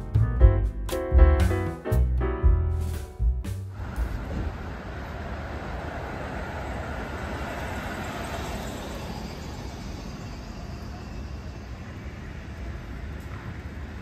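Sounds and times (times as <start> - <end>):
street traffic rumble and hiss: 3.0 - 14.0.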